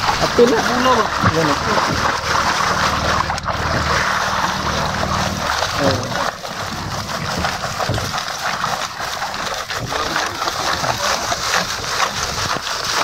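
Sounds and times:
clicking and scraping sea urchin spines: 0:00.0 - 0:13.0.

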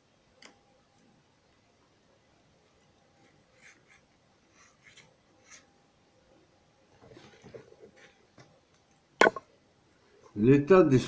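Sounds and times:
pencil scratching on paper: 0:03.2 - 0:05.7.

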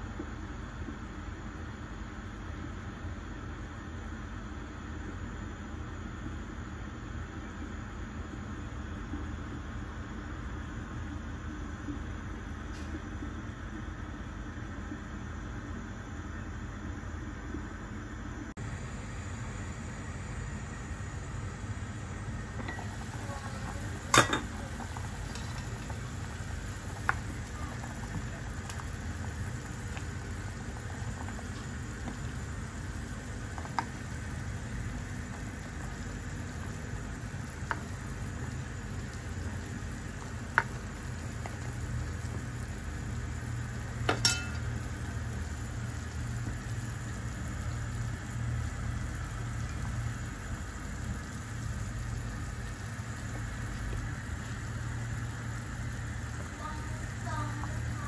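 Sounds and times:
soup bubbling in a clay pot: 0:22.2 - 0:58.0.

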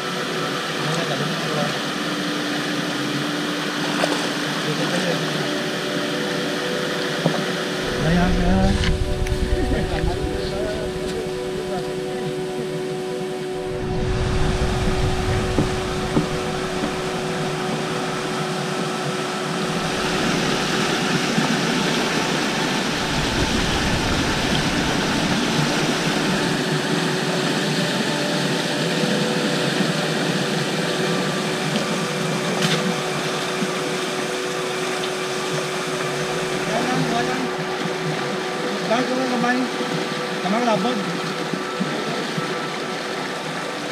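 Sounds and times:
river rushing over rocks: 0:00.0 - 0:43.9
faint hum tones: 0:01.6 - 0:39.0
wind rumble on microphone: 0:07.8 - 0:12.1, 0:13.6 - 0:18.4, 0:19.6 - 0:27.0.

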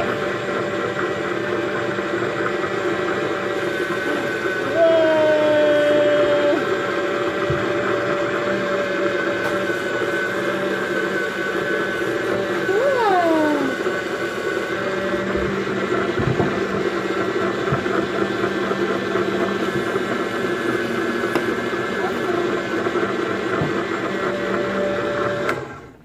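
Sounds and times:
small electric motor whirring: 0:12.2 - 0:15.4.

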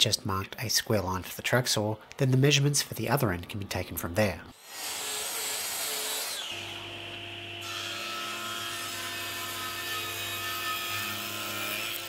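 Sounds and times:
table saw humming: 0:04.6 - 0:12.0
track saw cutting wood: 0:04.6 - 0:12.0.

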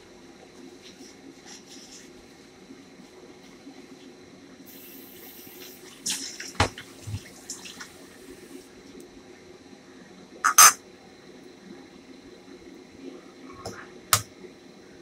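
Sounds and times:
steady low hum: 0:00.0 - 0:15.0
water running: 0:04.7 - 0:08.6.

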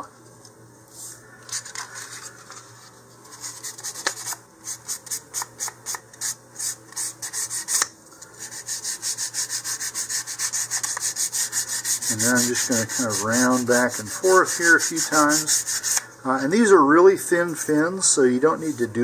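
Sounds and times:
sandpaper scraping wood: 0:03.4 - 0:07.8, 0:08.4 - 0:16.0.

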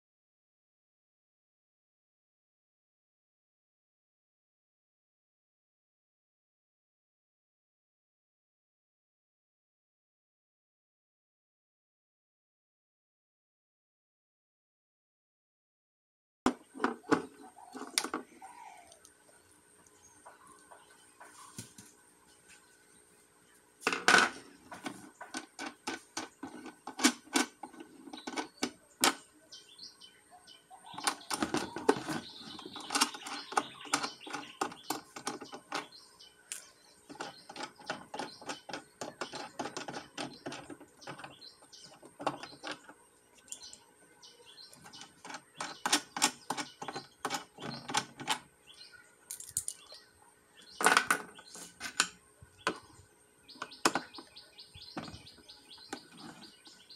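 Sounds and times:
plastic threads clicking and scraping: 0:36.5 - 0:43.8, 0:44.7 - 0:48.4.

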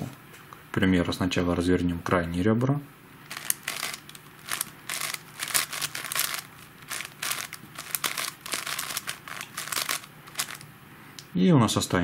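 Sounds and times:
puzzle cube plastic clacks: 0:03.3 - 0:10.6.

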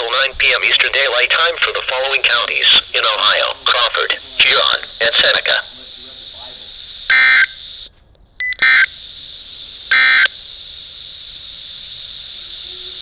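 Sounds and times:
static hiss: 0:00.0 - 0:13.0
digital data tones: 0:06.3 - 0:09.0, 0:09.9 - 0:10.4.

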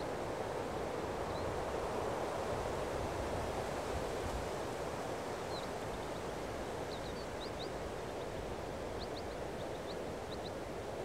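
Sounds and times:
small birds chirping: 0:06.9 - 0:10.6.

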